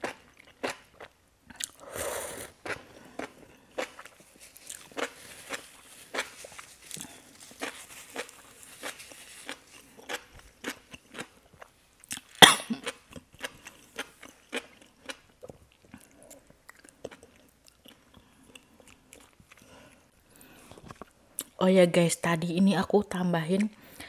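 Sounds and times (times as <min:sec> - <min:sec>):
wet chewing sounds: 0:02.5 - 0:21.6.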